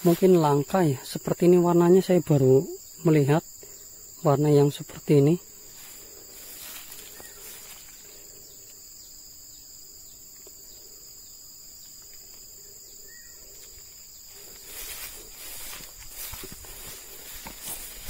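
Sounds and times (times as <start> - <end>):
high-pitched insect chorus: 0.0 - 18.0
rustling: 5.5 - 8.8, 13.4 - 18.0.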